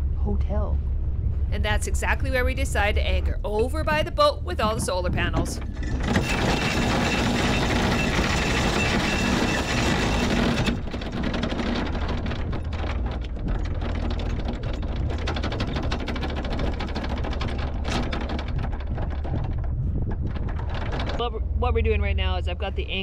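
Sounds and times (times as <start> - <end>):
boat engine running low: 0.0 - 23.0
anchor chain rattling out: 4.6 - 21.2.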